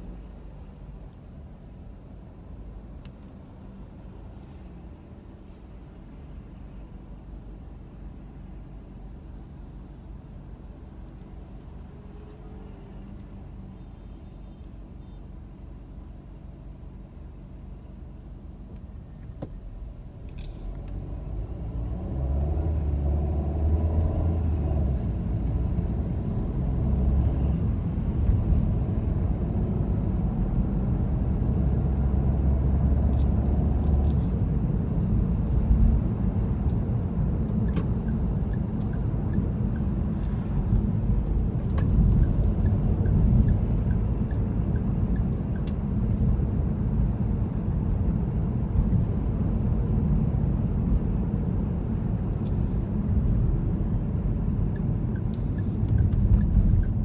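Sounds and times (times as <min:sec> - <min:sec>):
car engine and road rumble: 0:00.0 - 0:57.0.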